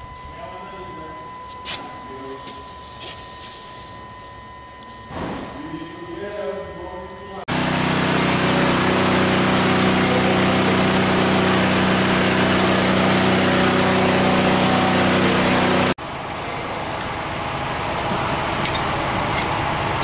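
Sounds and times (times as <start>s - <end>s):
faint high whine: 0.0s - 7.5s
machine motor humming: 0.0s - 20.0s.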